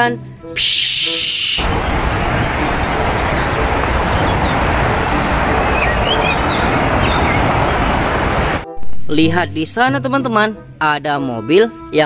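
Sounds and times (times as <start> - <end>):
birds chirping faintly: 0.6 - 8.6
jet engine noise: 0.6 - 8.6.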